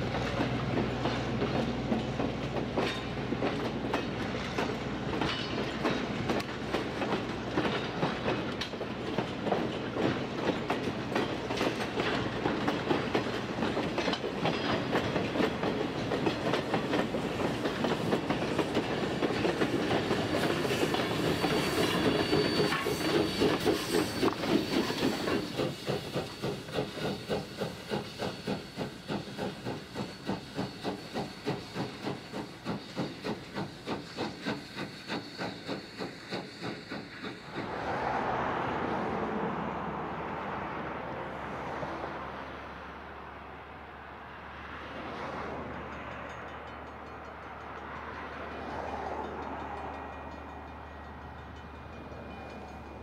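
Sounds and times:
steam hissing: 0.0 - 38.9
steam locomotive chuffing: 0.0 - 39.5.

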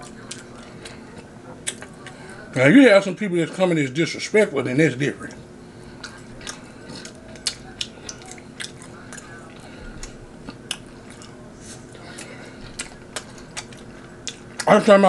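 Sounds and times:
person chewing: 0.0 - 2.4, 5.8 - 14.8
faint steady hum: 0.0 - 15.0.

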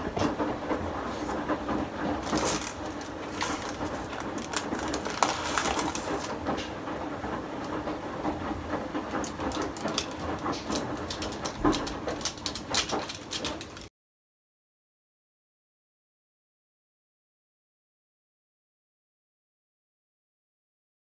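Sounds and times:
baking paper rustling: 1.0 - 6.7, 9.1 - 13.9.

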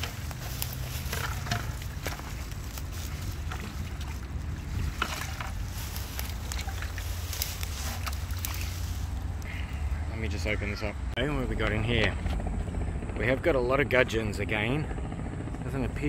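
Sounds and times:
plastic bucket rustling in grass: 0.0 - 9.5
wind rumble on microphone: 0.0 - 9.5.

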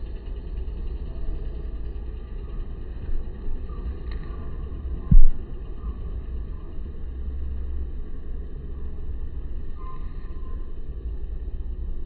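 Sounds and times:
low outdoor rumble: 0.0 - 12.0
loud low thump: 5.1 - 5.4.

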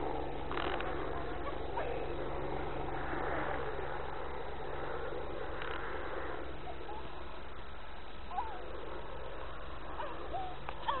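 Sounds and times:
low hum: 0.0 - 11.0
short high gliding calls: 8.2 - 11.0.

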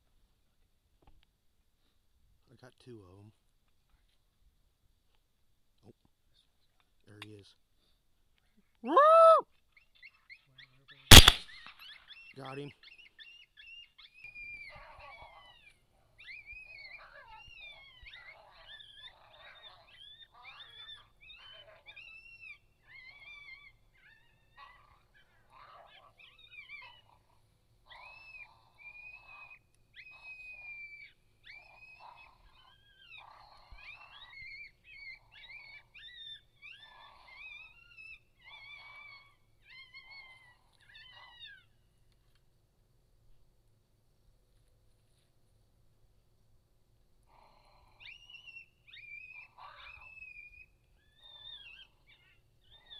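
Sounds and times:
coyotes yipping and howling: 8.8 - 42.3, 47.2 - 52.9.

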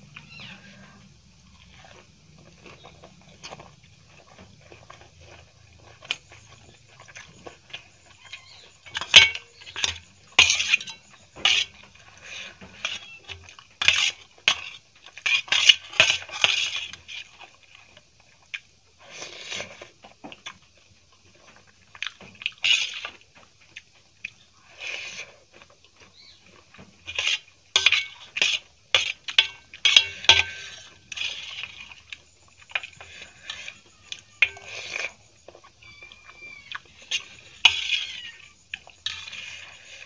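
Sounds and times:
spoon and fork scraping metal plate: 7.7 - 17.3, 27.0 - 35.2, 36.9 - 40.0.

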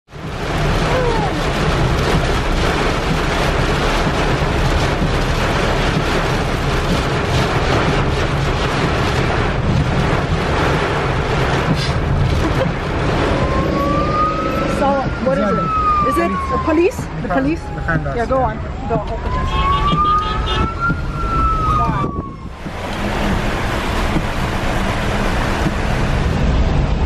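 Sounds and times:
heavy rain pounding car: 0.0 - 27.0
tyre and road noise: 0.1 - 27.0
siren rising in pitch: 13.1 - 22.7.

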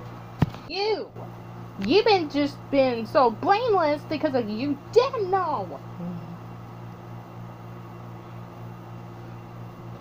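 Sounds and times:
steady low hum with hiss: 0.0 - 10.0.

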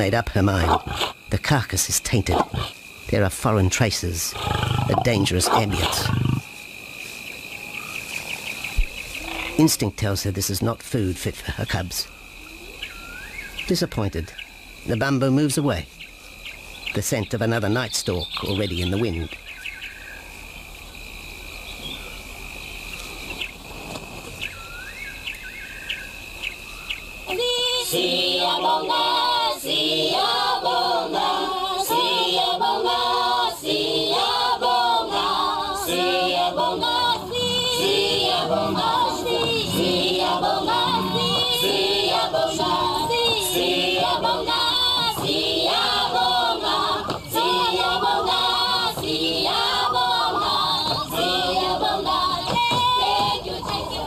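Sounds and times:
birds chirping: 11.4 - 23.6, 36.3 - 54.0
choir singing: 27.3 - 54.0
steady high drone: 35.8 - 45.0.

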